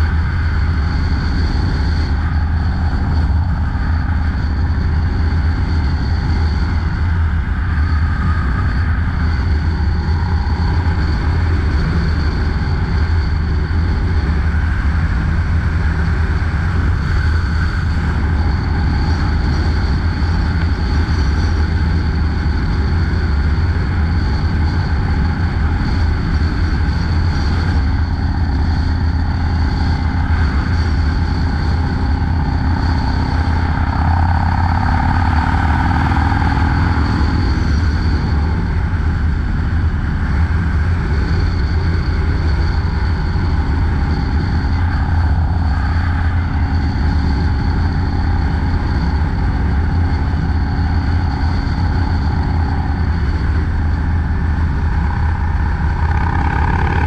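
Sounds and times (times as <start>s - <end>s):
wind rush: 0.0s - 57.0s
motorcycle engine rumbling: 27.6s - 48.6s, 52.2s - 57.0s.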